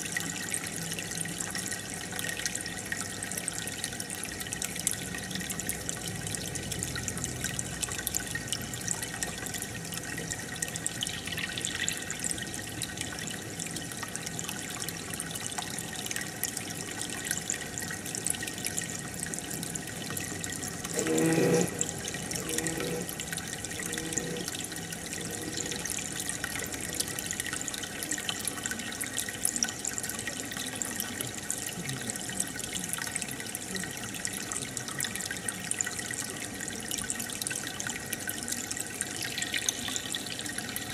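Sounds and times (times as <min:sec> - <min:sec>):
water running and dripping: 0:00.0 - 0:40.9.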